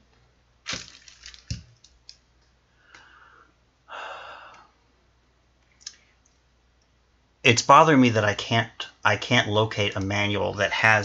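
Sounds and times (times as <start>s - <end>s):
breathy exhales: 2.8s - 4.8s.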